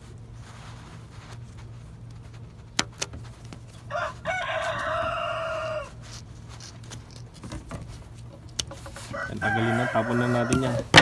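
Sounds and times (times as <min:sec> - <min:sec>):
rooster crowing: 0:03.9 - 0:06.2, 0:09.0 - 0:11.0.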